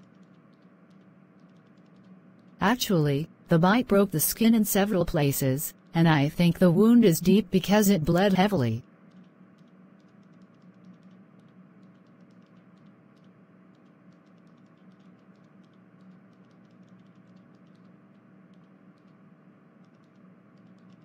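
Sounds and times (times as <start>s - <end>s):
light irregular clicks: 0.0s - 2.6s, 9.0s - 21.0s
steady low hum: 0.0s - 21.0s.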